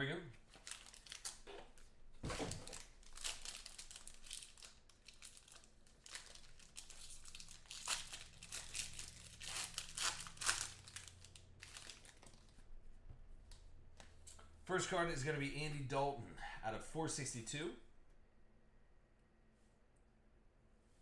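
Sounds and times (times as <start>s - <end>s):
plastic wrapper crinkling and tearing: 0.4s - 12.7s.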